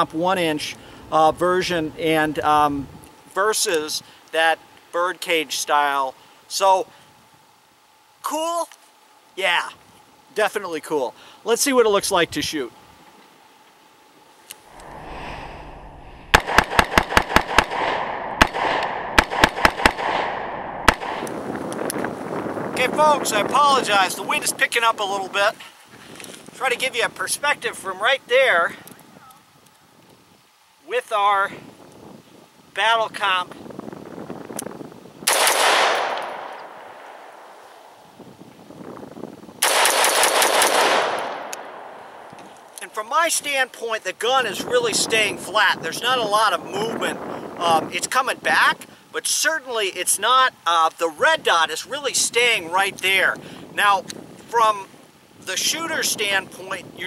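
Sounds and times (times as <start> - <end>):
rifle gunshots: 16.3 - 21.3, 35.3 - 37.4, 39.6 - 42.2.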